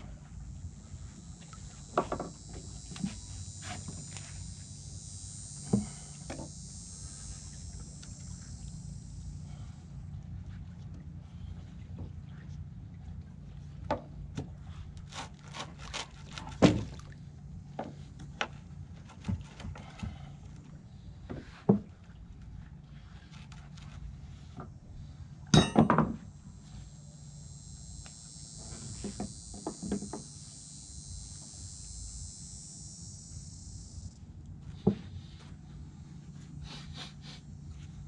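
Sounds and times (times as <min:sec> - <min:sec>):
high buzz: 0:00.0 - 0:10.2, 0:25.6 - 0:37.9
low hum: 0:00.0 - 0:15.0, 0:16.3 - 0:38.0
knocks and clinks of wooden beam: 0:25.6 - 0:26.2.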